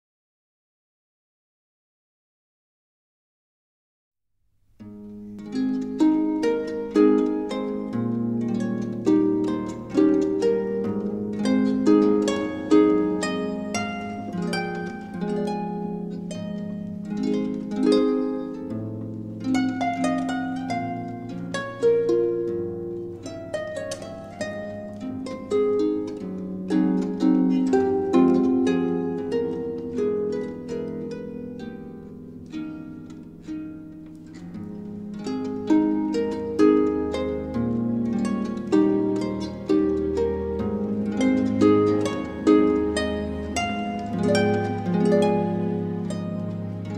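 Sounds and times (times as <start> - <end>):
plucked harp-like string melody: 4.8 - 46.9.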